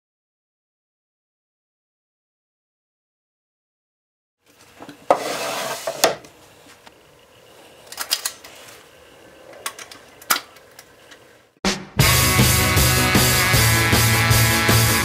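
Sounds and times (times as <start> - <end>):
wooden lid sliding and scraping: 4.8 - 6.2.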